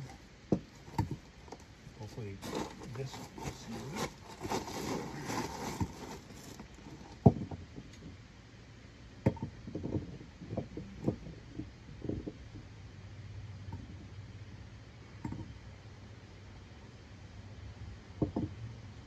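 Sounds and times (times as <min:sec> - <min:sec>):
handling rustle: 0:00.0 - 0:08.1.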